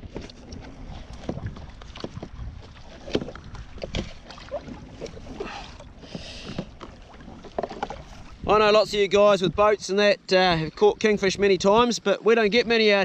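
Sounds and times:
knocks and clatters on kayak: 0.0s - 9.9s
wind rumble on microphone: 0.0s - 11.9s.

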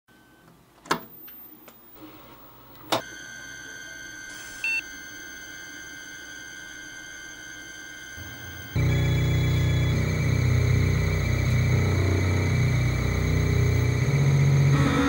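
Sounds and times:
controller electrical hum and whine: 0.1s - 15.0s.

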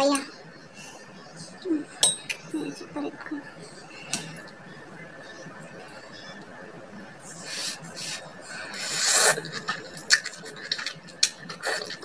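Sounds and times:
slurping noodle-like strands: 7.4s - 12.0s
wet chewing: 8.7s - 12.0s.

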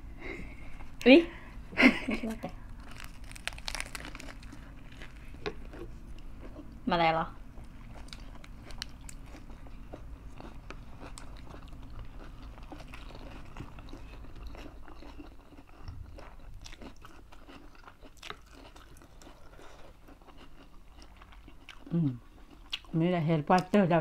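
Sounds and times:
crisp crunches of chewing lettuce: 2.7s - 6.6s, 7.7s - 23.0s.

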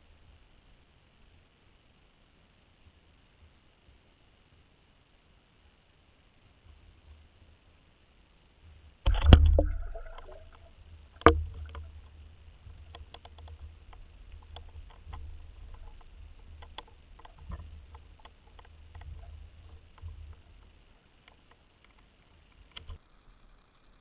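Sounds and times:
faint clicks: 9.0s - 23.0s
underwater splash: 9.1s - 20.5s.

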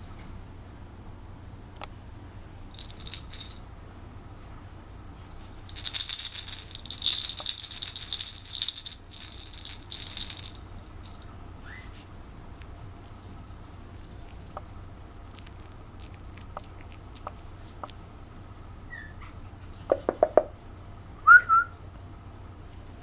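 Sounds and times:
toy rattle jingling: 2.7s - 3.6s, 5.4s - 11.3s.

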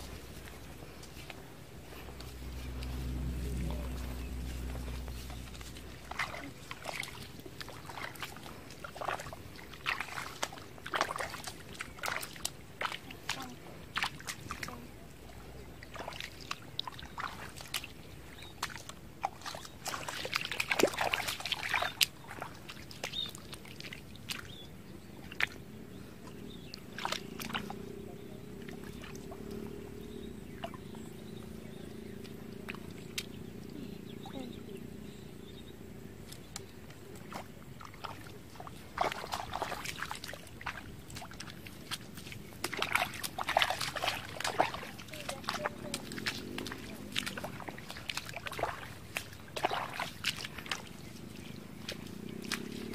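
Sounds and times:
faint steady hum: 0.0s - 21.5s
feet wading through muddy water: 0.0s - 52.9s.

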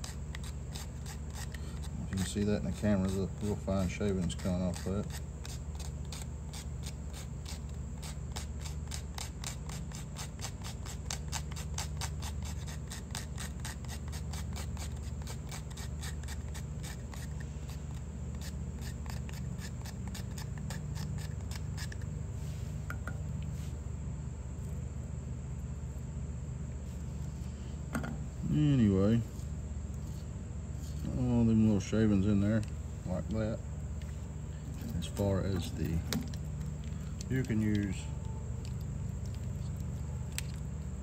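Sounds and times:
small saw rasping on dry wood: 0.0s - 22.1s.

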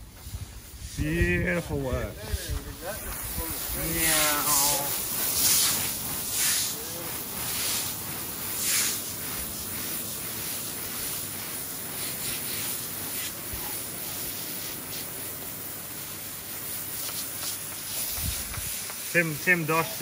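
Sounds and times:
hose spraying water on concrete: 0.0s - 20.0s
push broom scrubbing wet surface: 0.0s - 20.0s.

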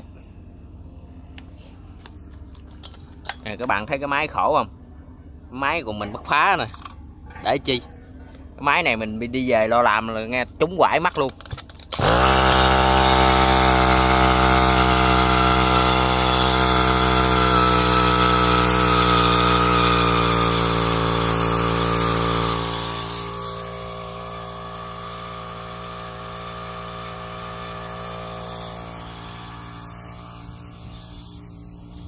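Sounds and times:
brushcutter engine running: 11.8s - 32.0s.

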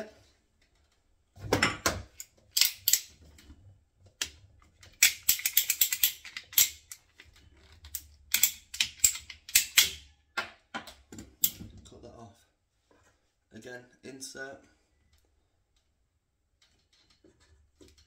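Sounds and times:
ratcheting pipe cutter clicking: 2.2s - 3.1s, 5.0s - 7.0s, 7.9s - 10.0s.

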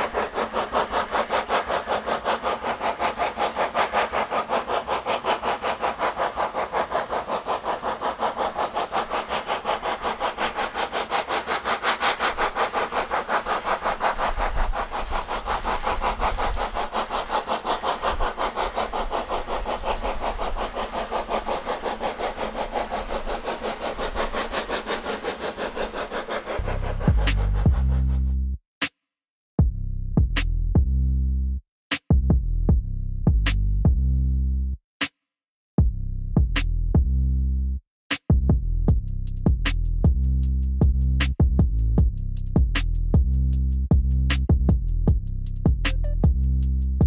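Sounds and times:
steam locomotive chuffing: 0.0s - 28.3s, 38.9s - 47.0s.

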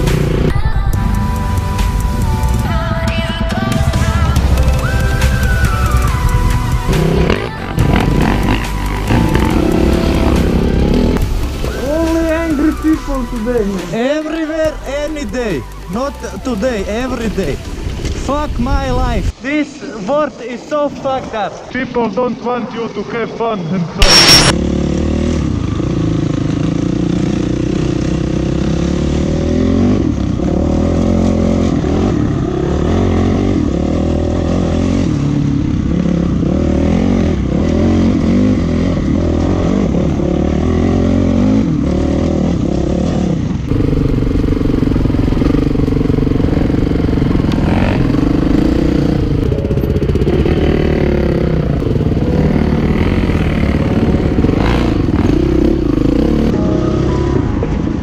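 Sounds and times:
dirt bike engine revving: 0.0s - 0.6s, 4.0s - 13.7s, 24.0s - 57.6s.

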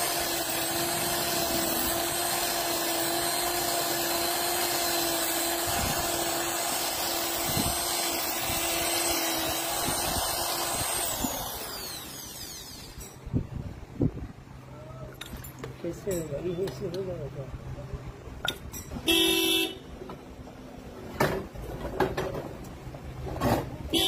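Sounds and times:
power tool running and spinning down: 0.0s - 13.2s.

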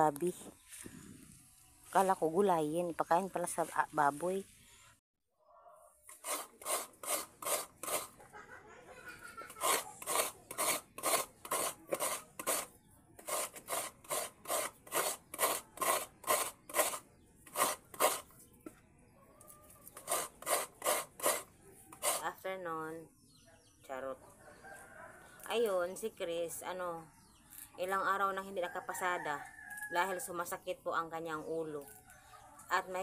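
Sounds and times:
coconut rasping on grater blade: 6.1s - 8.2s, 9.5s - 18.3s, 19.8s - 22.3s.

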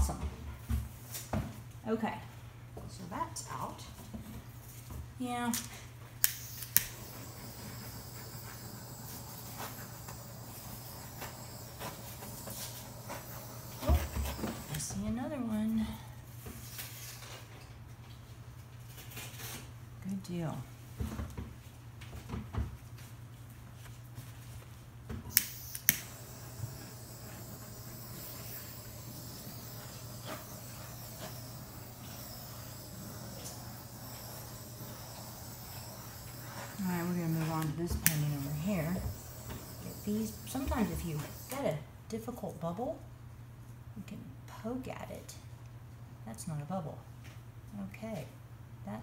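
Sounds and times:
steady low hum: 0.0s - 21.0s, 22.1s - 49.0s
torch igniter clicks: 5.5s - 14.9s, 25.3s - 41.6s
high hiss: 6.2s - 15.7s, 25.3s - 41.8s.

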